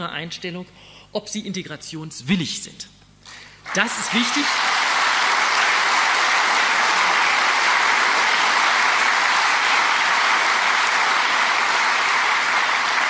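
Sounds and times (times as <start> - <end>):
audience applauding: 3.6 - 13.0.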